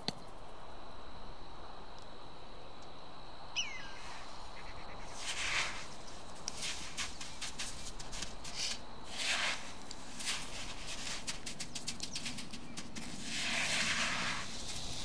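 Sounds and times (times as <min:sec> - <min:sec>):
coarse salt crunching: 0:05.0 - 0:15.0
salt grains pouring: 0:13.2 - 0:15.0.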